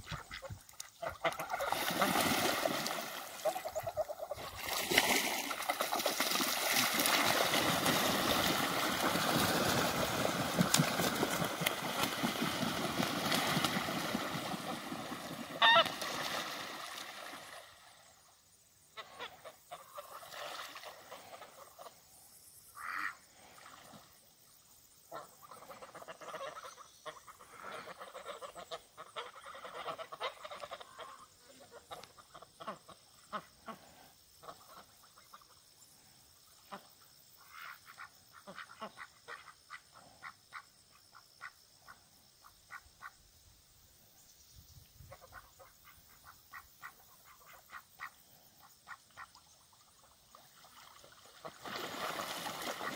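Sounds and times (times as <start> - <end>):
ducks quacking: 0.0 - 4.8, 5.9 - 16.2, 25.1 - 35.4, 36.7 - 40.6
geese honking: 10.6 - 16.2.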